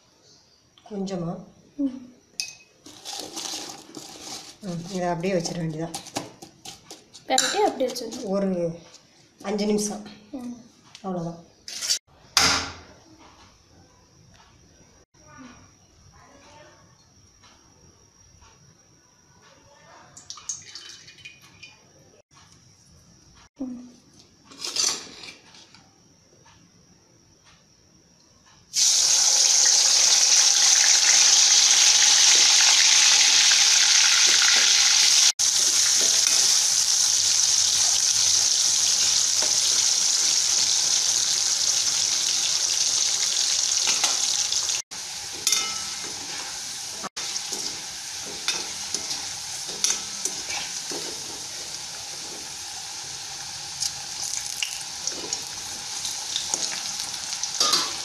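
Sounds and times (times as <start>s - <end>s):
food sizzling in hot oil: 2.4s - 6.3s, 20.3s - 21.6s, 28.7s - 58.0s.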